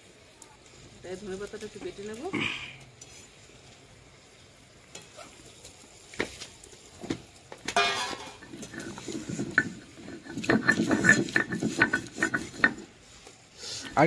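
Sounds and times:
grinding stone scraping: 0:07.8 - 0:13.0.

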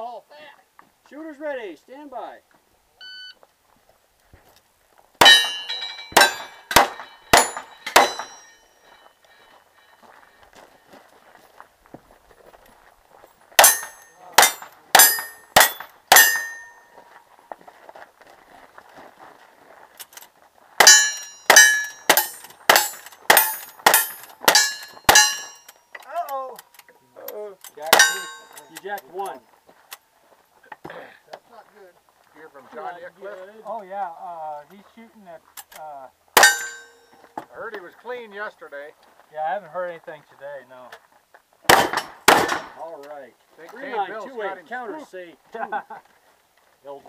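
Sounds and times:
gunshots: 0:05.2 - 0:08.4, 0:13.6 - 0:16.7, 0:41.7 - 0:42.8
metallic ring of steel targets: 0:05.2 - 0:10.1, 0:13.6 - 0:17.0, 0:20.8 - 0:25.8, 0:27.7 - 0:28.9, 0:36.4 - 0:37.2.

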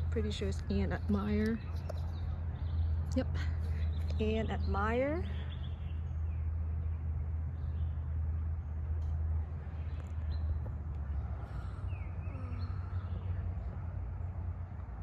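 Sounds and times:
steady low hum: 0:00.0 - 0:15.0
faint bird chirps: 0:11.6 - 0:13.6.

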